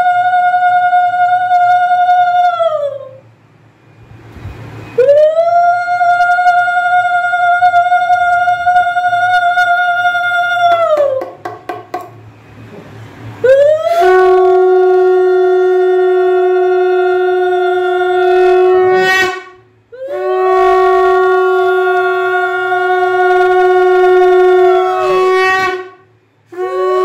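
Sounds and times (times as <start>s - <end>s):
conch shell blasts: 18.2s - 27.0s.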